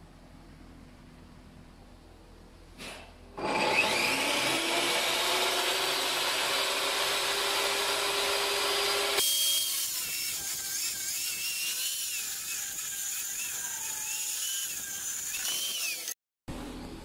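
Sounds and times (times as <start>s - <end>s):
high-pitched power tool whine: 3.4s - 16.2s.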